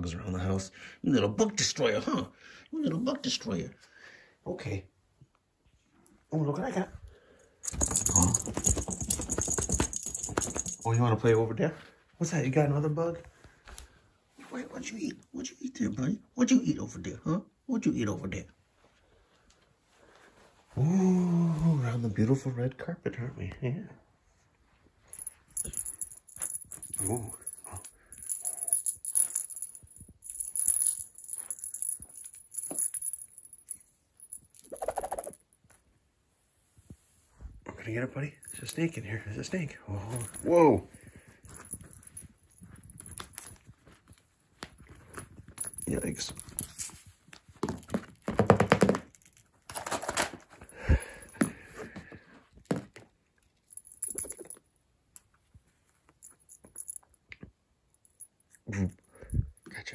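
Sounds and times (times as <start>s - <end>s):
small jingle bell shaken: 7.6s - 11.2s, 25.1s - 35.5s, 40.0s - 44.2s, 44.8s - 48.0s, 53.7s - 54.6s.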